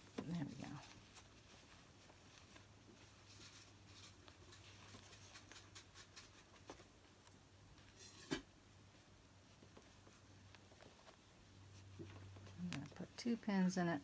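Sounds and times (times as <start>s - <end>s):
fabric rustling and pin clicks: 0.0s - 13.7s.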